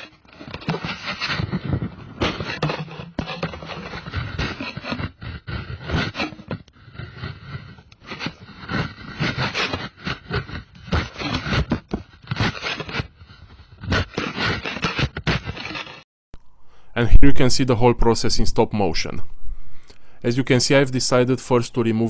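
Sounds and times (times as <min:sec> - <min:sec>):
metal scraper scraping steel roof: 0:00.0 - 0:16.0.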